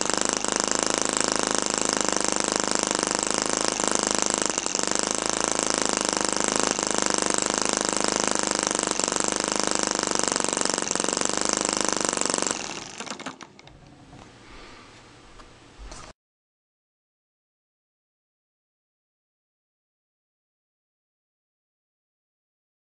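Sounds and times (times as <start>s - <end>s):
small engine clattering: 0.0s - 13.8s.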